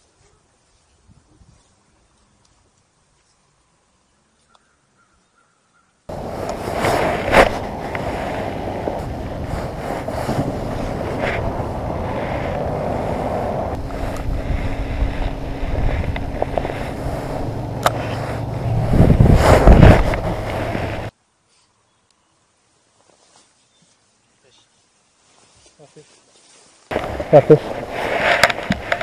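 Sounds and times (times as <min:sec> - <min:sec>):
wind buffeting microphone: 0:06.1 - 0:21.1.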